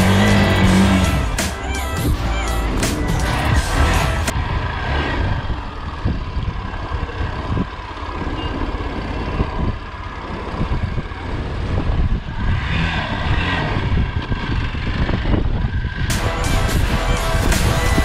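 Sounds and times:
motorcycle engine running: 0.0 - 18.0
wind rumble on microphone: 4.3 - 18.0.

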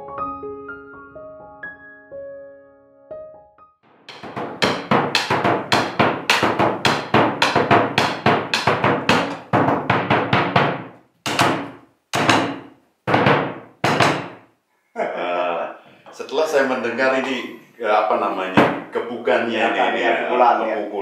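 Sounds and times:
drum beaten with sticks: 4.1 - 14.4.

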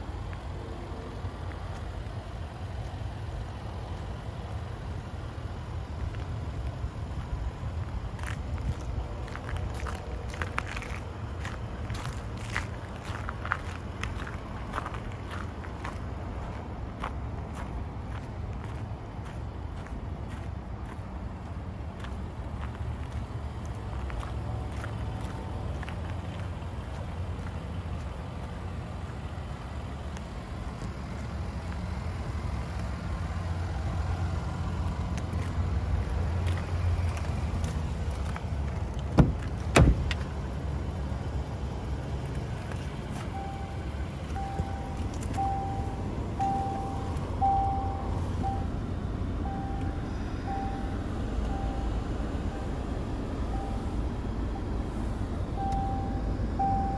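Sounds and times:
car warning chime beeping: 43.2 - 56.9.

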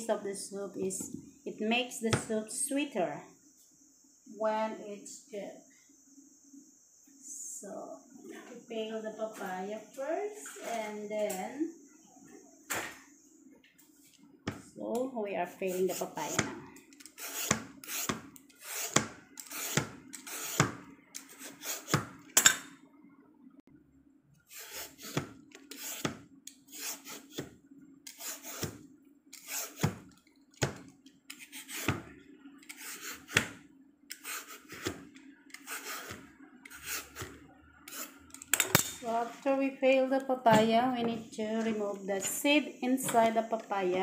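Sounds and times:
peeler scraping fruit skin: 15.7 - 22.0, 24.5 - 27.4, 28.1 - 28.7, 29.3 - 29.9, 31.3 - 32.0, 32.6 - 33.5, 34.1 - 38.7.

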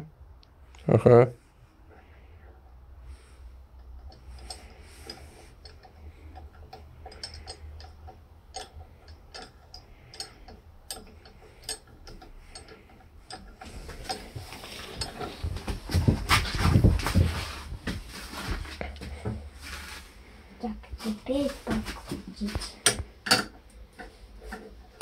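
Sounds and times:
nut spinning on threaded stud: 3.7 - 15.5.

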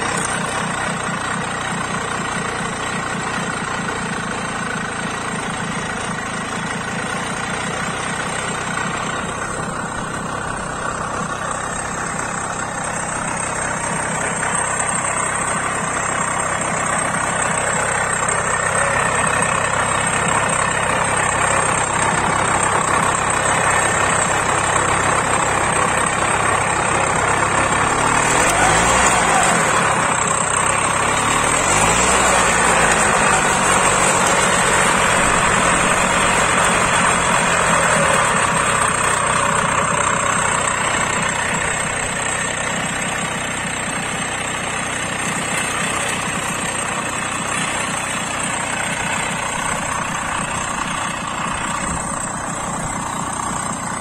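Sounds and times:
tiller engine running: 0.0 - 54.0.

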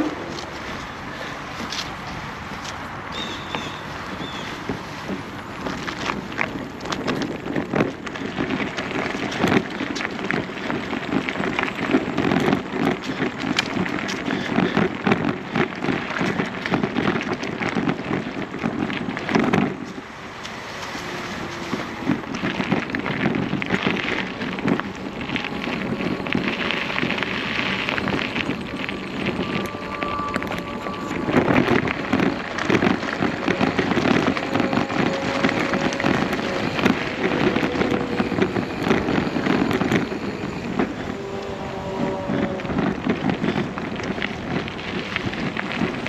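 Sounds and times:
gravel crunching: 0.0 - 46.0.

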